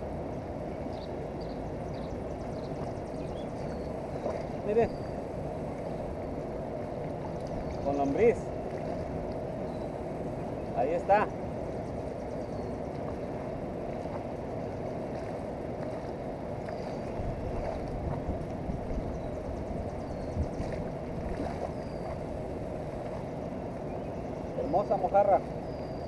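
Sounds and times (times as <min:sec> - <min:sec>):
river flowing: 0:00.0 - 0:26.0
wind on microphone: 0:00.0 - 0:26.0.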